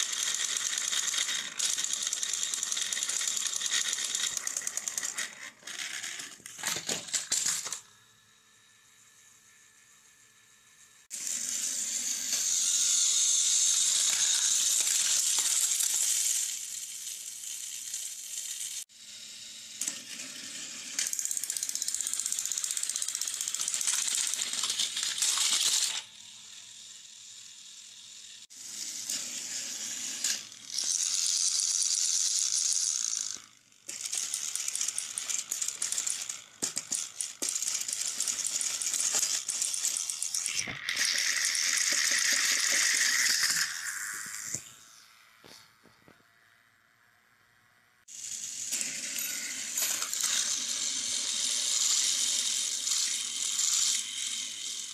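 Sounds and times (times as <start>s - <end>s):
toy trains rattling on track: 0.0s - 7.9s, 11.0s - 45.6s, 48.1s - 54.9s.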